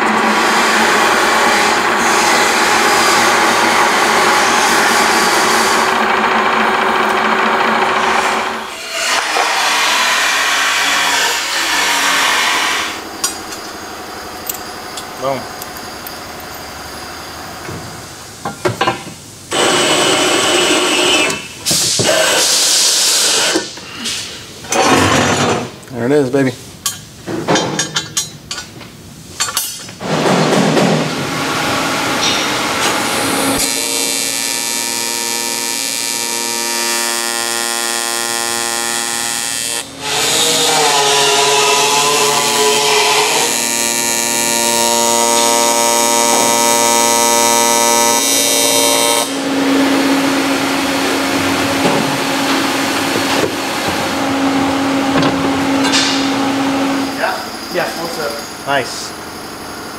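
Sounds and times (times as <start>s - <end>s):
metal lathe cutting: 0.0s - 13.0s, 19.5s - 21.5s, 31.6s - 57.1s.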